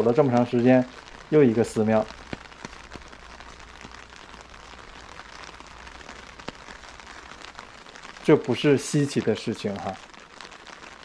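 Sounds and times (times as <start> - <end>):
light rain on wet street: 0.0 - 11.0
single raindrop ticks: 2.2 - 3.1.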